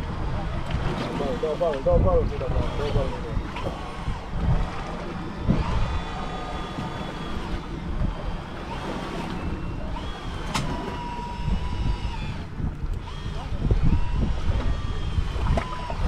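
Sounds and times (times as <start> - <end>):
thin steady whines: 0.0 - 16.0
wind buffeting microphone: 0.0 - 16.0
fishing reel cranking: 2.4 - 16.0
sharp click: 10.4 - 10.7.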